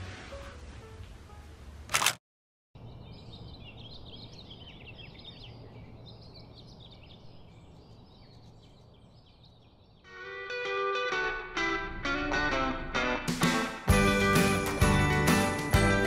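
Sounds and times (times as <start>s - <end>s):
low city hum: 2.8s - 10.0s
small birds chirping: 2.8s - 10.1s.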